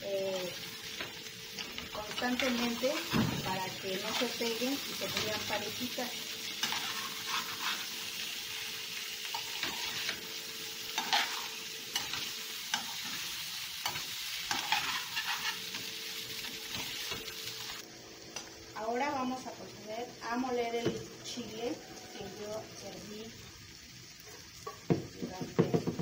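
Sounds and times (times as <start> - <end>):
potatoes sizzling in a skillet: 0.0 - 26.0
metal spoon scraping a pan: 2.0 - 3.1, 6.5 - 8.4, 9.2 - 10.2, 10.9 - 15.9.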